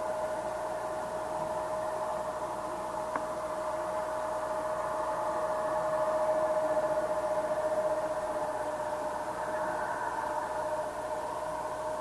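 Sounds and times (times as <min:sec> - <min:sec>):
distant jet engines whining: 0:00.0 - 0:12.0.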